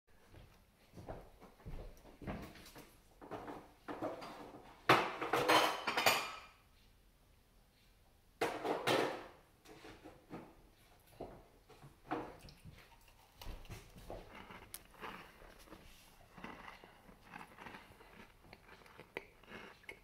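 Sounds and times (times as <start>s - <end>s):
dishes clattering: 3.2s - 6.6s, 8.4s - 10.6s.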